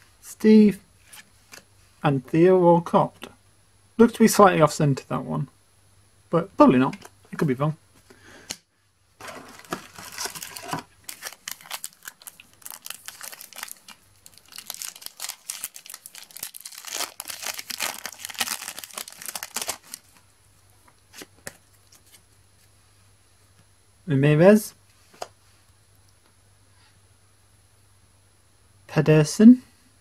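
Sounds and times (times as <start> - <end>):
foil wrapper crinkling and tearing: 9.2 - 20.2.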